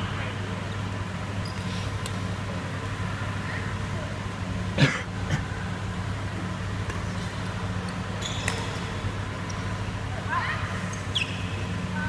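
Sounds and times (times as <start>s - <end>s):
steady low hum: 0.0s - 12.0s
racket hitting shuttlecock: 8.3s - 9.0s.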